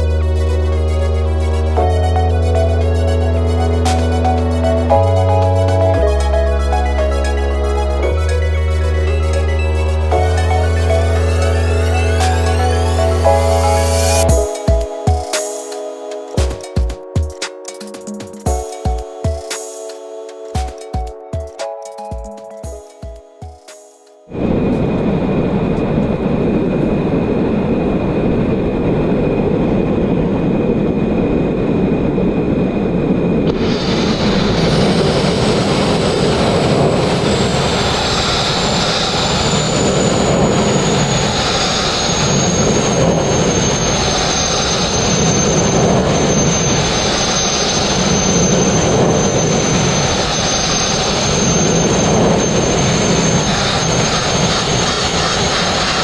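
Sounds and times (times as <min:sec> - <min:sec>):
sandblasting rushing noise: 0:33.5 - 0:56.0.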